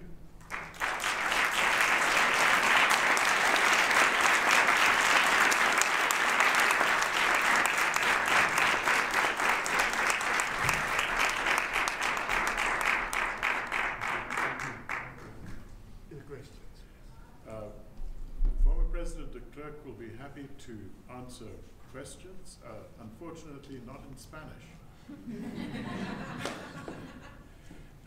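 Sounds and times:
audience applauding: 0.4 - 15.4.

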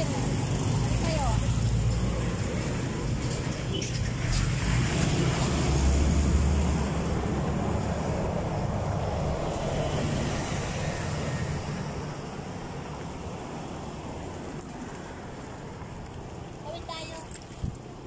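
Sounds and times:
truck engine rumble passing: 0.0 - 12.8.

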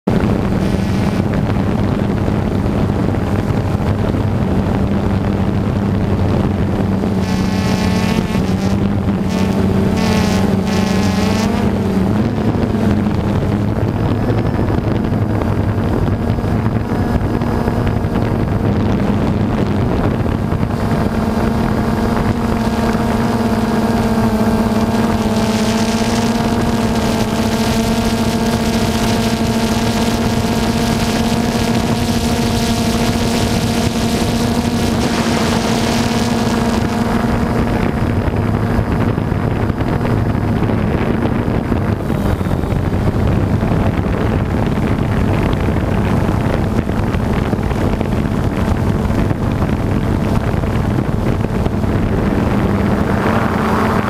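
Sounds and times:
drone propellers buzzing: 0.1 - 54.0.

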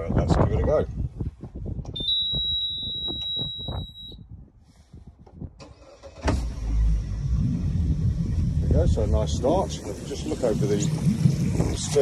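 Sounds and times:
warning buzzer beep: 2.0 - 4.2
outboard engine cranking and running: 5.6 - 8.7.

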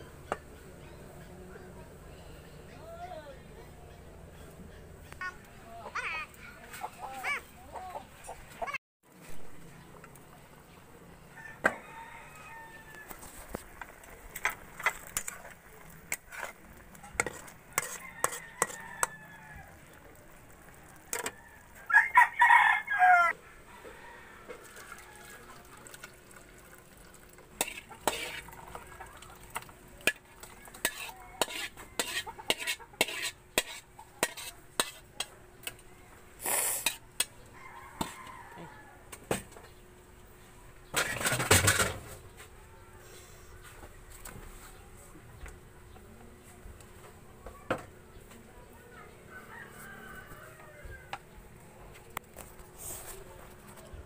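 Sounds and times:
rooster crowing: 11.3 - 13.2, 17.8 - 19.9, 20.8 - 25.6, 37.5 - 39.2, 49.3 - 51.2
metal spatula scraping a wok: 14.4 - 19.2, 21.1 - 21.4, 27.6 - 28.8, 30.0 - 35.8, 36.4 - 37.3.

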